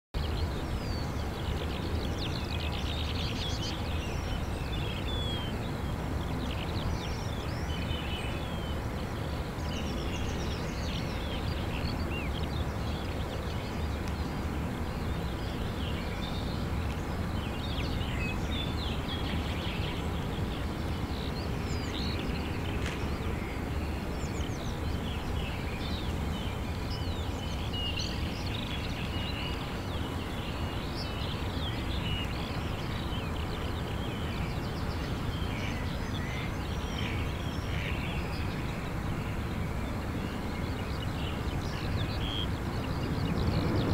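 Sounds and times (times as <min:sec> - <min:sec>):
songbirds chirping: 0:00.2 - 0:43.9
low outdoor rumble: 0:32.4 - 0:43.9.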